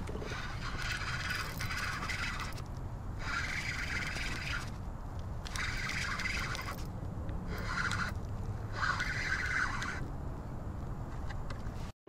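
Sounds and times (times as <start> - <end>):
fishing reel whirring: 0.0 - 4.8, 5.4 - 6.9, 7.5 - 10.0
low wind rumble: 0.0 - 11.9.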